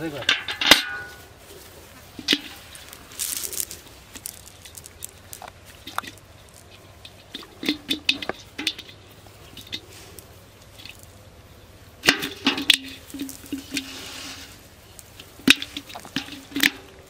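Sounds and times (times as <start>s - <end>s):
net mesh rustling and crackling: 1.4s - 7.8s.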